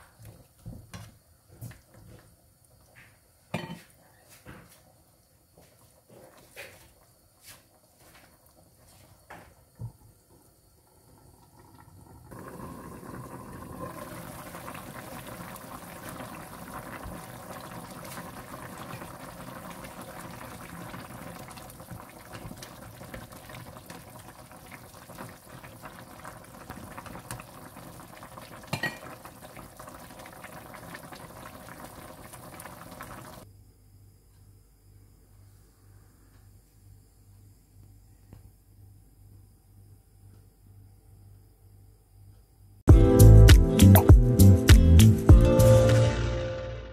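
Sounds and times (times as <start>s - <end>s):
soup bubbling: 7.8s - 33.4s.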